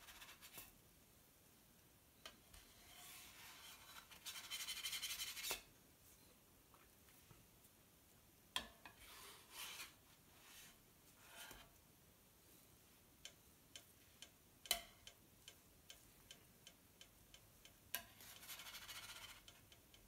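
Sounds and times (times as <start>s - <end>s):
spatula scraping a hard plate: 2.5s - 5.6s, 8.8s - 11.7s, 18.0s - 19.5s.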